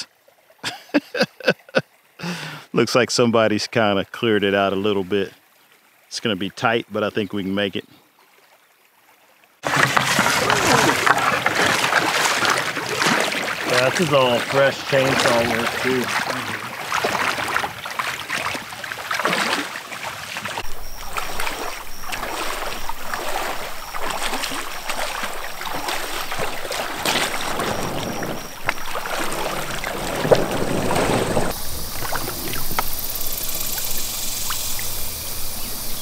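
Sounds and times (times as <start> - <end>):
outdoor background noise: 0.0 - 36.0
river water splashing around feet: 8.1 - 36.0.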